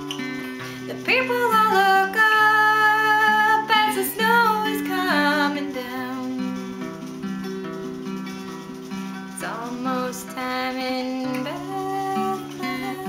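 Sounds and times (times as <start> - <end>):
acoustic guitar single notes: 0.0 - 1.1
woman singing: 0.0 - 6.9, 9.4 - 13.0.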